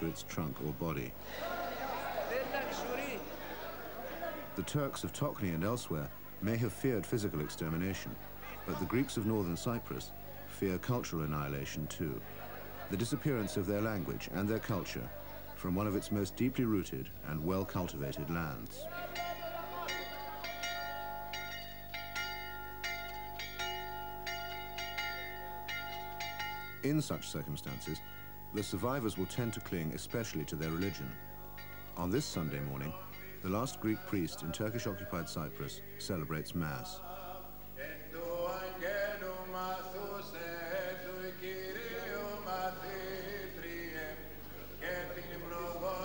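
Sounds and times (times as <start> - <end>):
church bell ringing: 19.1 - 35.2
man chanting: 26.8 - 31.2, 31.9 - 46.0.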